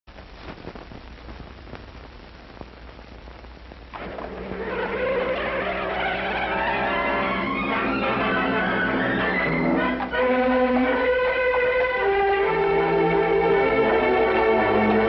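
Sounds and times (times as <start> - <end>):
film soundtrack hiss and crackle: 0.0 - 15.0
music: 3.9 - 15.0.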